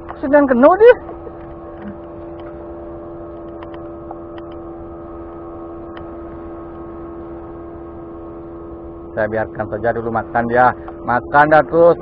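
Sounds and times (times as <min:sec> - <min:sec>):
motorboat engine humming: 0:00.0 - 0:12.0
faint clicks: 0:03.3 - 0:04.6.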